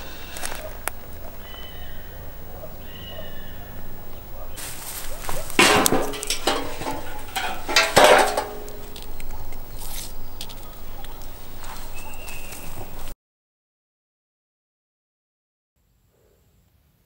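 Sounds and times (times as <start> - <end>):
steel bowl clanging: 5.5 - 9.2.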